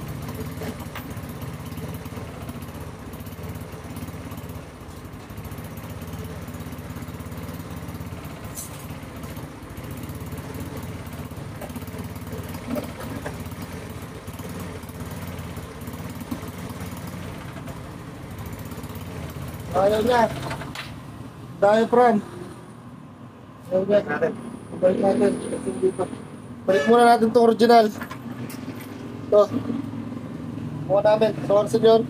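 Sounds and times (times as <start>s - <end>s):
scooter engine idling: 0.0s - 21.8s.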